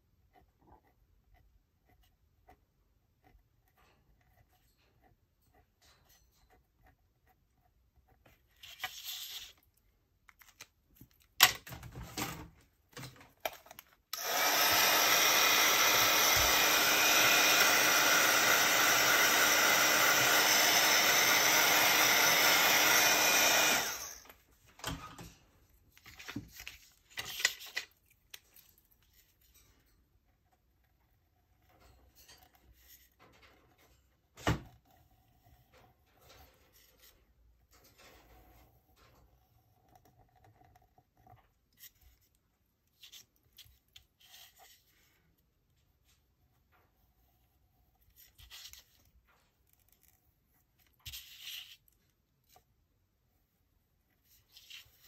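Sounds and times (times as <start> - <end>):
clicks and handling noises: 8.3 - 14.5
hot-air blower running: 14.1 - 24.3.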